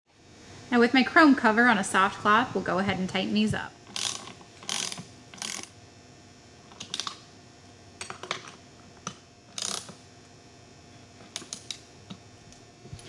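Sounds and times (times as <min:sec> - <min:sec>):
ratcheting wrench clicking: 0:03.9 - 0:05.7, 0:09.5 - 0:10.0.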